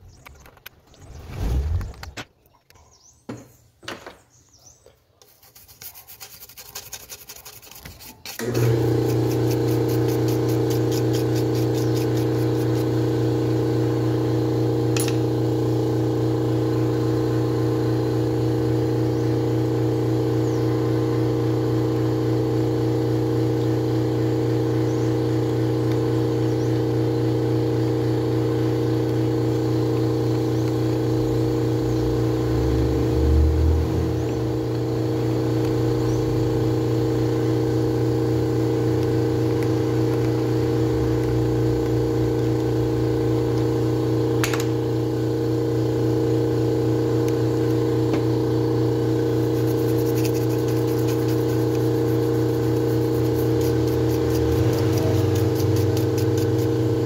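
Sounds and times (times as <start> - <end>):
handling and rubbing noises: 5.1 - 8.4, 49.5 - 56.7
loud steady motor hum: 5.5 - 57.0.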